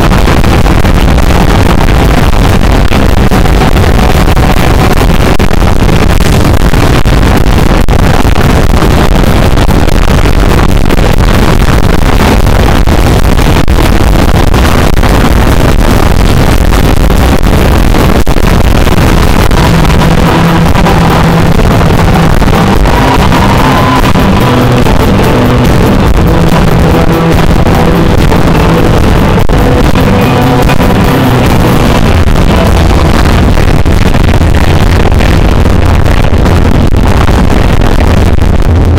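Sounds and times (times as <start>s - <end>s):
bass guitar line: 0.0s - 38.9s
person singing: 19.6s - 33.4s.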